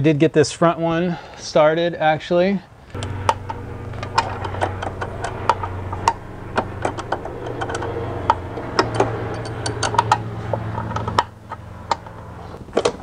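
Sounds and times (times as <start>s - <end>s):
low hum: 2.9s - 12.8s.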